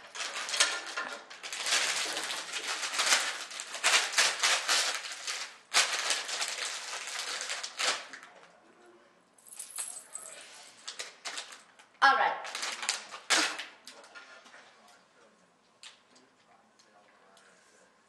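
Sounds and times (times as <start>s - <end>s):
bag of hard pieces rattling: 0.0s - 8.1s.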